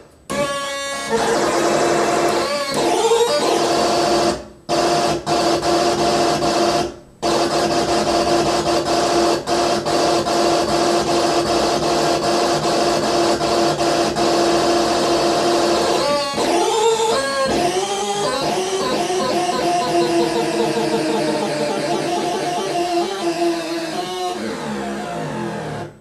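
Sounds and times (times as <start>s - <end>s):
harsh buzzing electronic noise: 0.3s - 26.0s.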